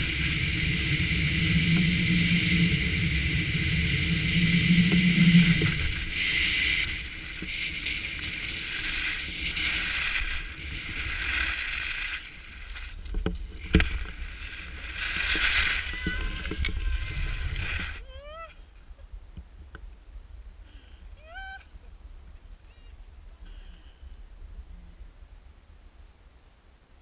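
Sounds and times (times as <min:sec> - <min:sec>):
skis scraping on snow: 0:00.0 - 0:18.1
wind rushing over camera: 0:00.0 - 0:23.4.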